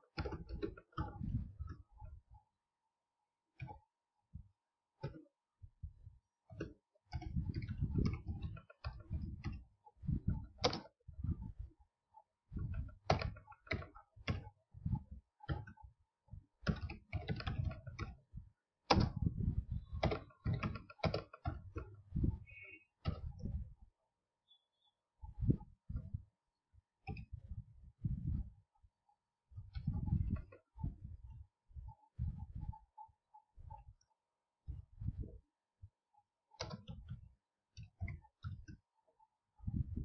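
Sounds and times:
computer keyboard typing: 0:10.4 - 0:11.0, 0:12.6 - 0:14.6, 0:16.6 - 0:18.3, 0:19.8 - 0:23.4.

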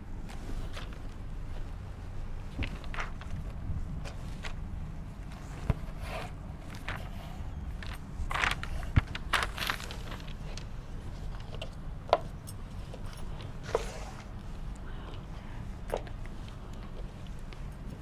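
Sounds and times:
steady low hum: 0:00.0 - 0:18.0
paper rustling: 0:05.3 - 0:10.7.

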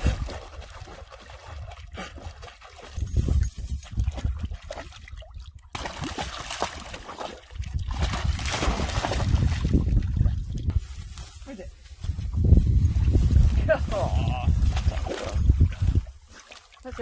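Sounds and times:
dog splashing through water: 0:00.0 - 0:10.6, 0:14.6 - 0:17.0.

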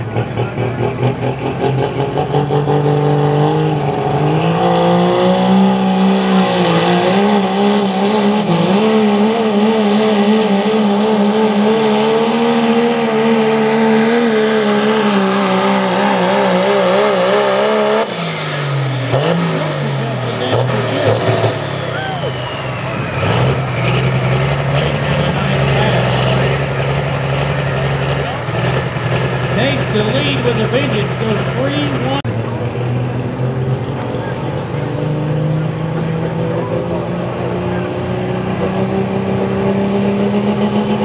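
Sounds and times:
diesel truck engine at full throttle: 0:00.0 - 0:41.0
high whistle: 0:21.9 - 0:23.2.

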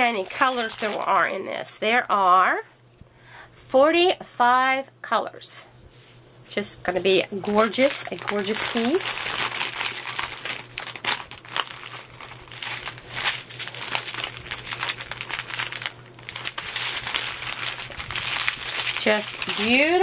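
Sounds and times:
plastic bags crinkling: 0:00.0 - 0:01.5, 0:07.4 - 0:20.0.

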